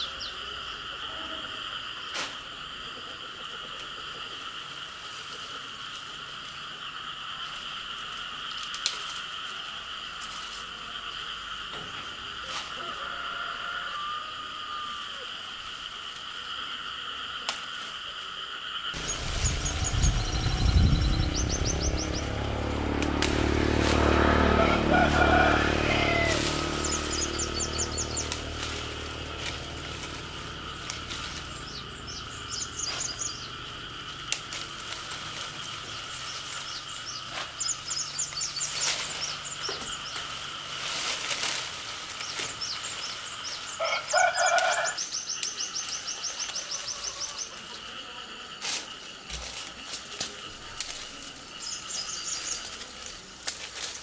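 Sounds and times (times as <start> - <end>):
high insect drone: 0.0 - 54.0
low hum: 19.0 - 37.0
birds chirping in trills: 19.0 - 40.6, 42.0 - 47.6, 51.5 - 53.0.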